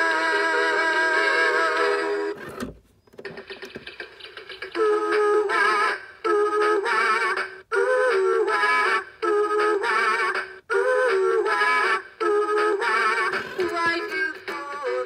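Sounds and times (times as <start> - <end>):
toy bird song through small speaker: 3.3 - 15.0.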